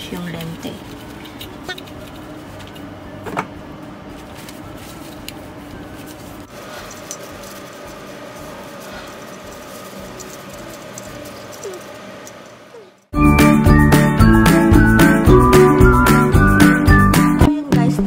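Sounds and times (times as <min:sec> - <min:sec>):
steady hum: 0:00.0 - 0:13.6
tissue wiping eyeglasses: 0:04.1 - 0:12.9.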